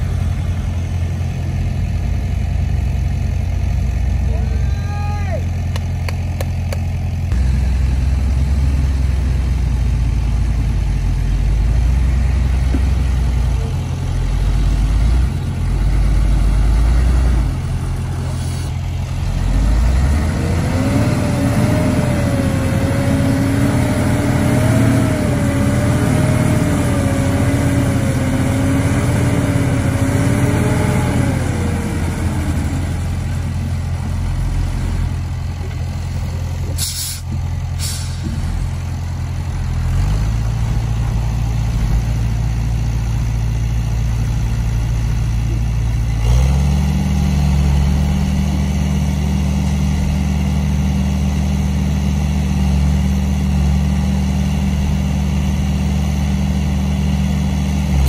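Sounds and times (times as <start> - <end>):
diesel engine running: 0.0 - 58.0
short air hisses: 18.2 - 18.7, 36.8 - 38.4.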